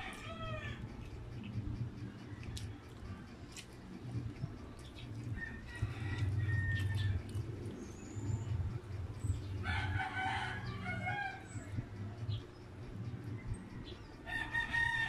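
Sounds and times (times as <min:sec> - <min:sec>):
rooster crowing: 0:00.0 - 0:00.9, 0:05.4 - 0:07.3, 0:09.6 - 0:11.7, 0:14.2 - 0:15.0.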